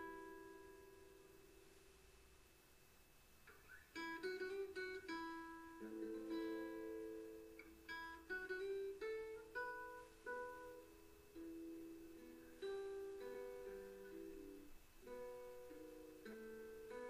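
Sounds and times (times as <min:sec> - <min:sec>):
plucked string melody: 0:03.5 - 0:17.0.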